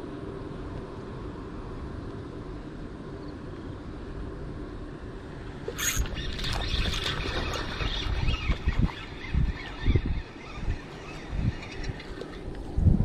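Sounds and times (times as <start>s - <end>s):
wind rumbling on microphone: 0.0s - 13.0s
rod and reel handling clicks: 5.7s - 7.5s
fishing line whipping off reel: 5.7s - 9.8s.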